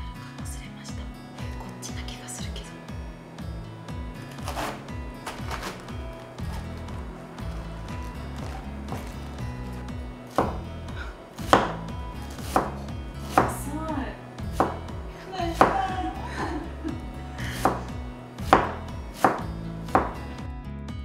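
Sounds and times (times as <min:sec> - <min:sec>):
knife knocking on cutting board: 0:10.4 - 0:10.6, 0:11.5 - 0:11.8, 0:14.5 - 0:14.8, 0:18.5 - 0:20.2.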